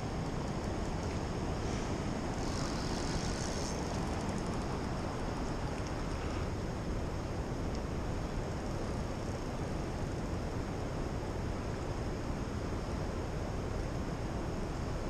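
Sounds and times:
faint ticks: 0.2s - 1.3s, 2.4s - 6.6s.

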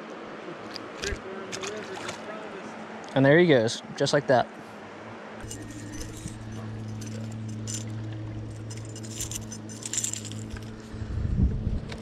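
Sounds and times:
steady low hum: 3.8s - 12.0s
fishing lure hooks jingling: 5.4s - 10.8s.

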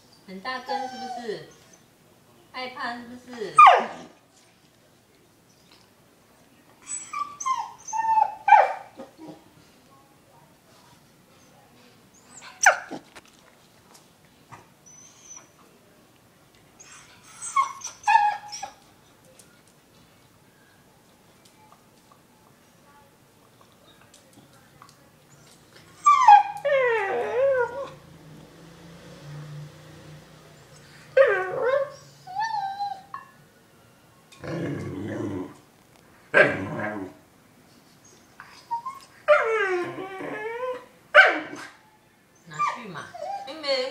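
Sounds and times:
dog whimpering and whining: 0.6s - 1.8s, 6.8s - 9.4s, 14.8s - 15.6s, 16.8s - 18.8s, 25.4s - 28.0s, 30.7s - 33.4s, 38.4s - 40.9s, 42.4s - 43.6s
dog growling low: 34.4s - 35.6s
dog barking: 41.2s - 41.8s.

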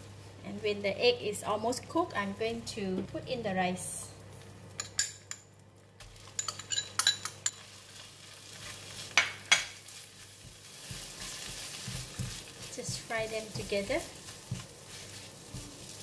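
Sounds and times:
food sizzling: 5.5s - 16.0s
utensils scraping a wok: 9.8s - 16.0s.

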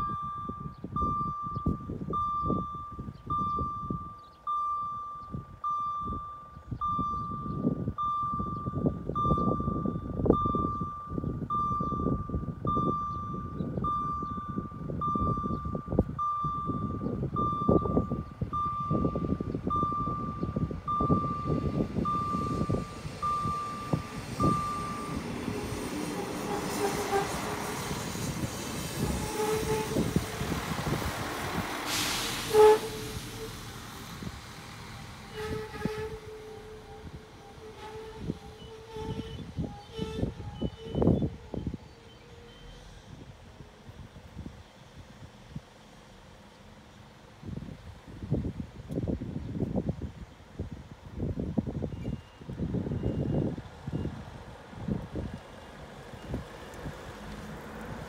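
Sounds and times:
level crossing signal beeping: 0.0s - 27.4s
passenger train approaching: 0.0s - 48.1s.

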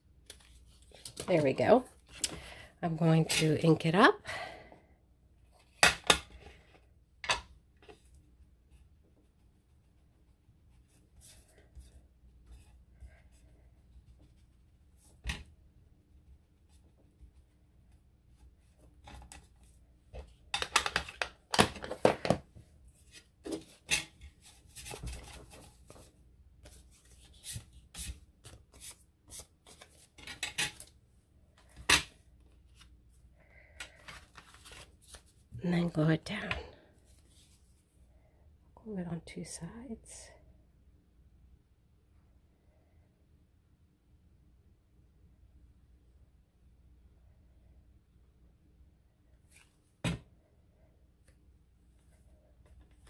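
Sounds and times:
paper rustling and scraping: 33.8s - 35.4s.

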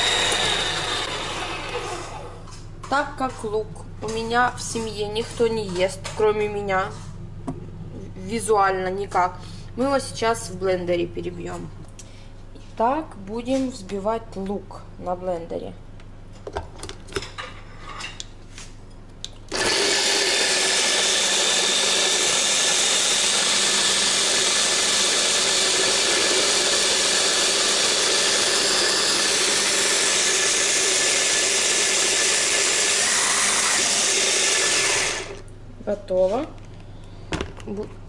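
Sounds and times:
hand blender chopping onion: 19.5s - 35.4s.

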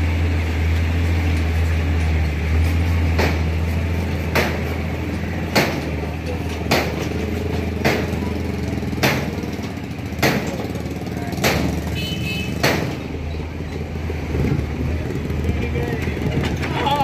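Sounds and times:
vehicle engine running: 0.0s - 17.0s
sharp knock: 10.2s - 10.6s, 11.4s - 11.9s, 12.5s - 13.0s.

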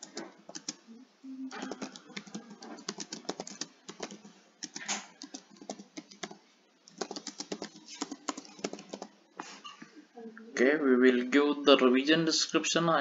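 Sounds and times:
computer keyboard typing: 0.0s - 0.8s, 1.5s - 9.1s.

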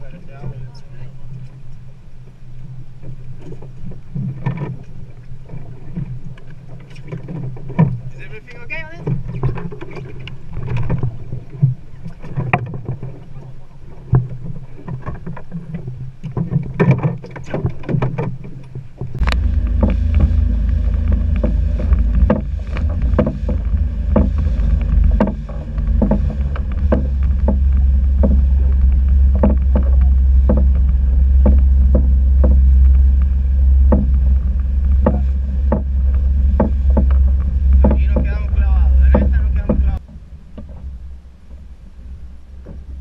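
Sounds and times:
boat hull slapping waves: 0.0s - 43.0s
wind rumble on microphone: 0.0s - 43.0s.

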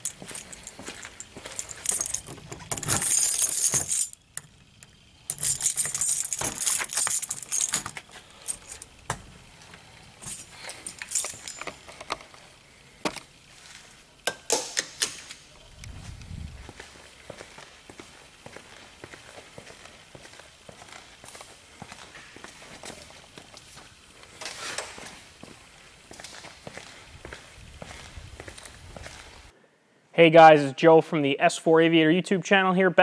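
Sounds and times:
keys jangling: 0.0s - 9.0s, 9.6s - 12.4s.

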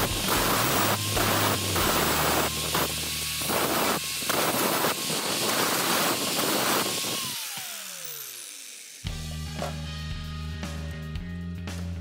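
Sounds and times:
angle grinder grinding metal: 0.0s - 10.2s
grinder motor whine: 0.0s - 10.9s
grinder disc spinning down: 0.0s - 11.1s.

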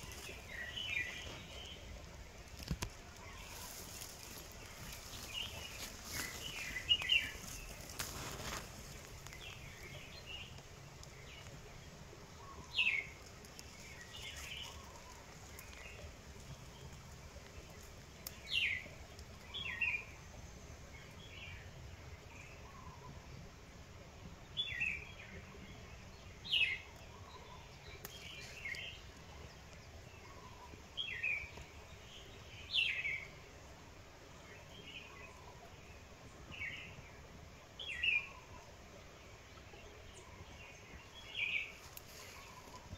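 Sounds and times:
soft bird chirps: 0.0s - 23.5s, 34.4s - 42.9s
small birds calling: 0.0s - 23.7s, 24.5s - 42.9s.

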